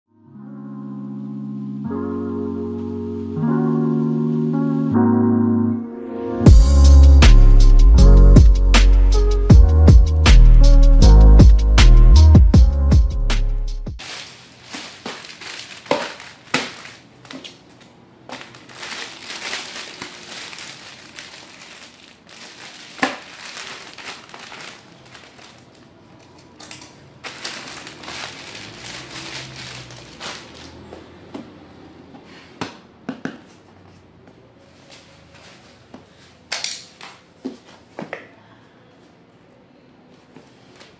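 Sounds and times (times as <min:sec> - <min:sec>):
plastic wrapping crinkling: 0:14.0 - 0:30.9.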